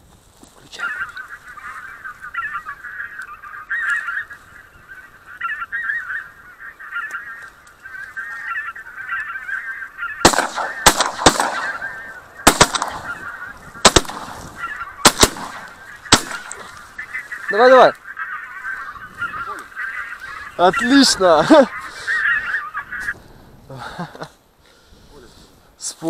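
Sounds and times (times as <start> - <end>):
geese honking: 0.8 - 23.2
shotgun shots: 10.2 - 16.6.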